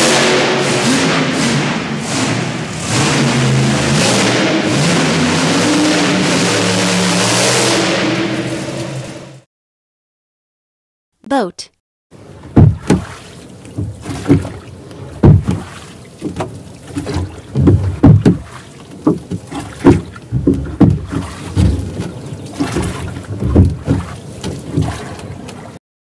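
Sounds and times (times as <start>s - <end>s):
water slapping against boat: 12.2s - 25.8s
wind: 12.2s - 25.8s.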